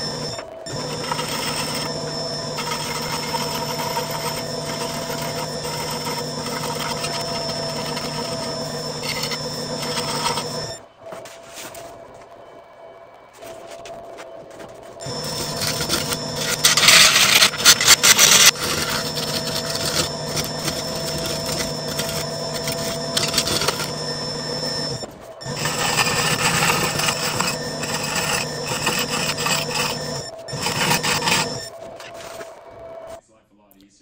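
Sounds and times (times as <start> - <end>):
wood lathe humming: 0.0 - 10.8, 15.0 - 33.2
tool scraping spinning wood: 0.0 - 11.4, 14.6 - 33.2.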